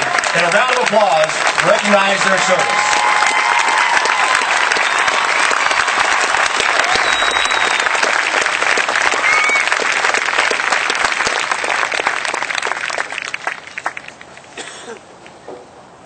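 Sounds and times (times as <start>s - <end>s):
crowd applauding: 0.0s - 14.6s.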